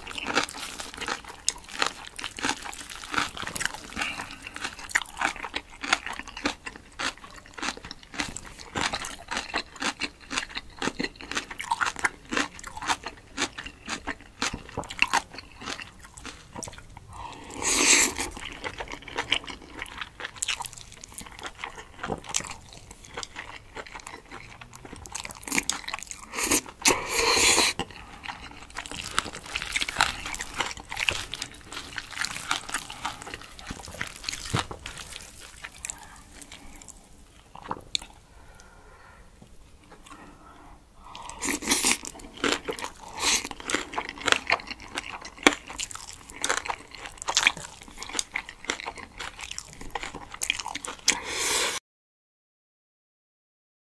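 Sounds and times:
wet chewing: 0.0s - 38.8s, 39.4s - 51.7s
slurping noodles: 26.2s - 34.2s, 41.1s - 43.6s, 51.2s - 51.8s.

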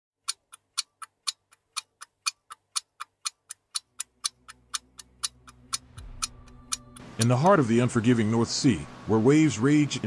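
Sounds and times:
watch ticking: 0.2s - 7.9s
low hum: 4.9s - 9.7s.

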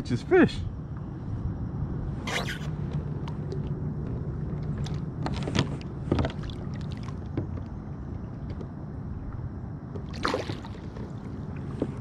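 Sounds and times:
water and wind rumble: 0.0s - 12.0s
fish splashing in water: 10.1s - 11.4s.

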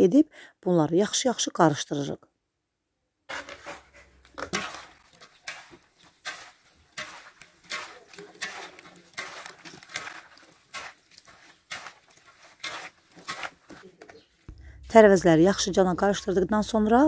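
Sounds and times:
hands squeezing wet vegetables: 3.7s - 14.5s.

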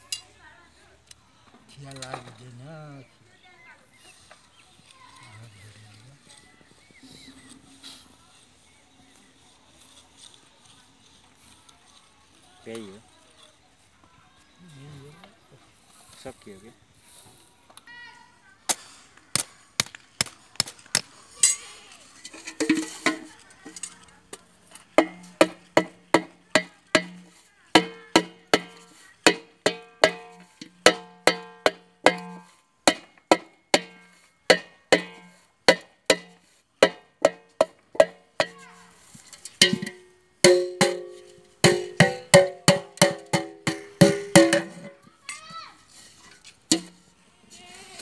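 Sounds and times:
hammer striking metal pot: 22.3s - 23.3s, 25.0s - 38.6s, 39.6s - 45.0s, 46.7s - 47.0s.

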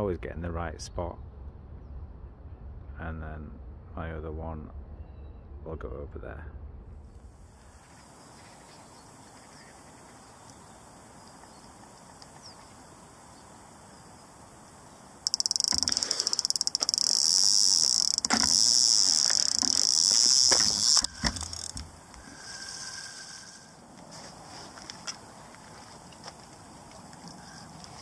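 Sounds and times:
electronic bite alarm bleeping: 15.2s - 17.2s
fishing rod knocks: 15.3s - 17.0s, 18.0s - 18.6s.

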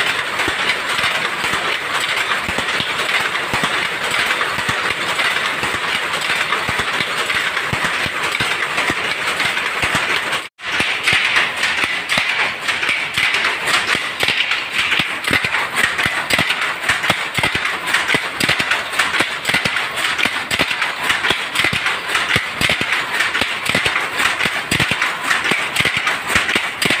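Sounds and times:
power loom clattering: 0.0s - 27.0s.

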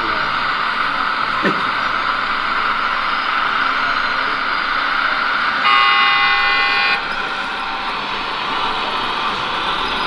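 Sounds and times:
model excavator running: 0.0s - 10.0s
horn-like multi-pitched tone: 5.6s - 7.1s.

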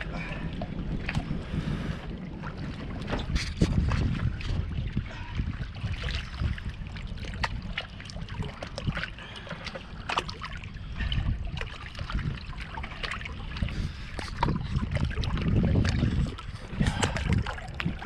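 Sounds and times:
water lapping on rocks: 0.0s - 18.0s
wind rumble on microphone: 0.0s - 18.0s.

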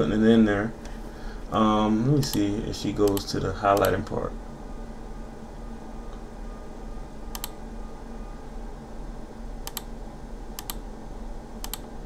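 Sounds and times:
faint steady hum: 0.0s - 12.0s
computer mouse double clicks: 11.6s - 11.8s.

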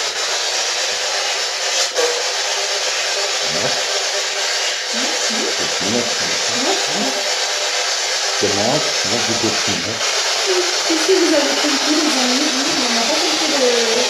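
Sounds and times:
radio static hiss: 3.3s - 4.0s, 4.9s - 7.4s, 8.4s - 14.0s
voice-like snatches through static: 3.4s - 3.8s, 5.0s - 7.2s, 8.4s - 10.0s.

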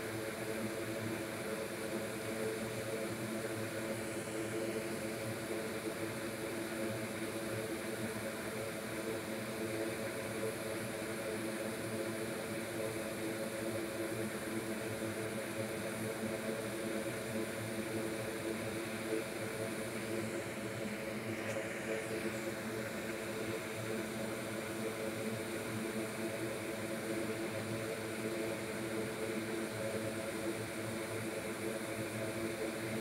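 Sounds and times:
fume extractor running: 0.0s - 33.0s
hot air station blowing: 17.1s - 27.5s.

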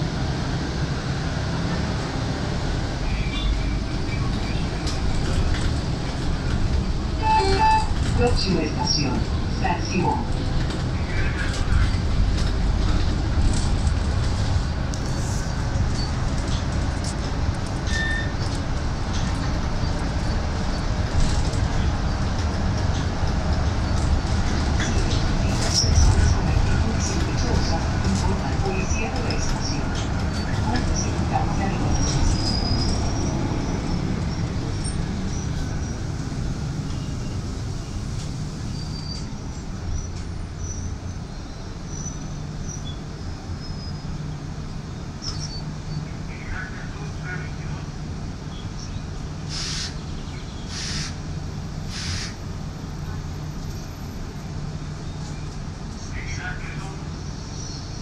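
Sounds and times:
bus cabin rumble: 0.0s - 58.0s
high squeak: 7.2s - 8.0s.

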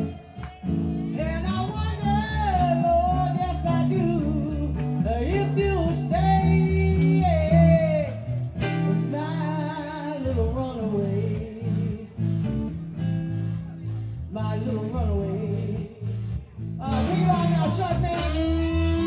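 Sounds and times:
person singing: 0.0s - 12.4s, 13.8s - 19.0s
live rock band playing: 16.3s - 19.0s.

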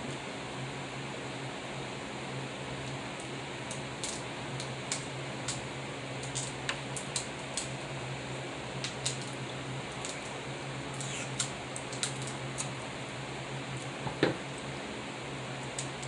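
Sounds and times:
steady background hum: 0.0s - 16.0s
crab shells cracking: 3.2s - 5.6s, 6.2s - 7.7s, 8.8s - 12.8s.

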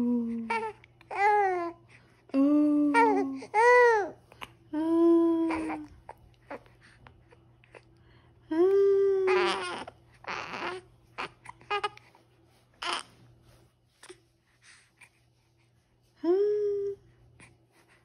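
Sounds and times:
woman cooing: 0.0s - 1.3s, 2.3s - 4.1s, 4.7s - 6.0s, 8.5s - 10.4s, 16.2s - 17.0s
baby cooing: 5.2s - 5.9s, 9.1s - 12.0s.

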